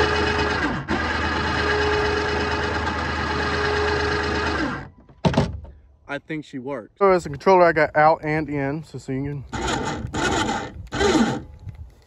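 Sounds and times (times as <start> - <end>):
electric winch whirring: 0.0 - 5.0, 9.5 - 11.6.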